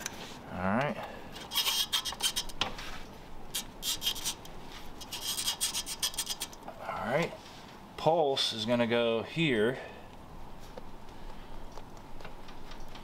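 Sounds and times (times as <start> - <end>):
hand tool scraping clicks: 1.4 - 2.6.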